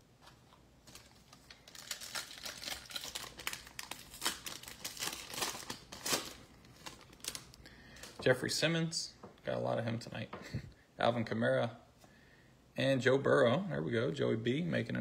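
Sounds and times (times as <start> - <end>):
foil wrapper crinkling and tearing: 0.2 - 8.1.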